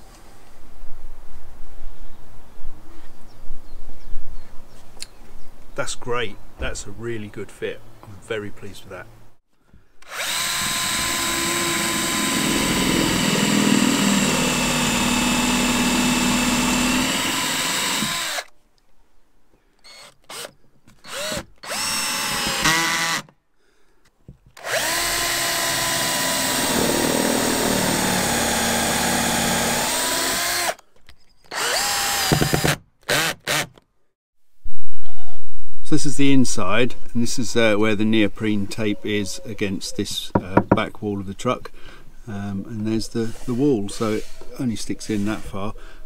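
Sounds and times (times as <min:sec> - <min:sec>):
cordless drill running: 0:10.0 - 0:18.5, 0:19.8 - 0:23.3, 0:24.6 - 0:30.8, 0:31.5 - 0:33.7
drill driving screws in short bursts: 0:10.0 - 0:18.5, 0:19.8 - 0:23.3, 0:24.6 - 0:30.8, 0:31.5 - 0:33.8.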